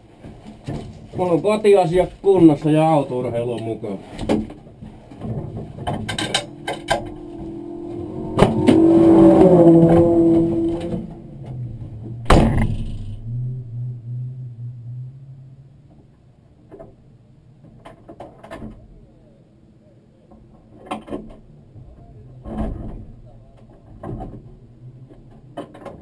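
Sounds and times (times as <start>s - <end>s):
knocks clicks and rustling: 3.3s - 13.2s
loud steady hum: 5.8s - 16.7s
door slamming: 12.2s - 13.5s.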